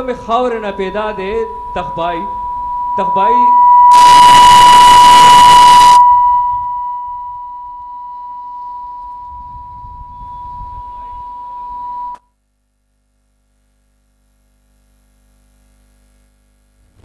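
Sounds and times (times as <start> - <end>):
high-pitched electronic tone: 0.0 - 12.2.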